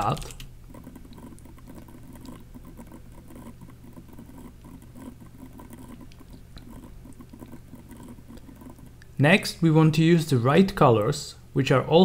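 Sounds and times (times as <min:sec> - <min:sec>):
keyboard typing: 0:00.0 - 0:09.0
low steady hum: 0:00.0 - 0:12.0.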